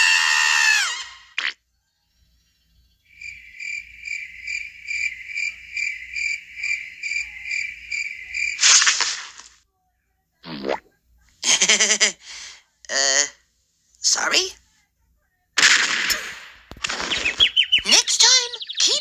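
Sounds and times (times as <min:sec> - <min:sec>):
cricket chirping: 0:02.5 - 0:09.6.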